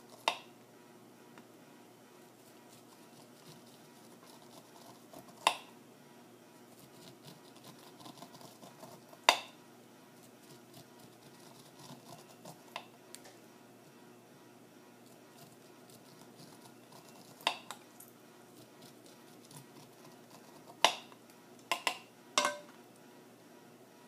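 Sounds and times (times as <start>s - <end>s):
knife scraping corn kernels: 2.4s - 5.6s, 6.7s - 9.3s, 10.2s - 12.8s, 15.1s - 17.8s, 18.5s - 21.0s.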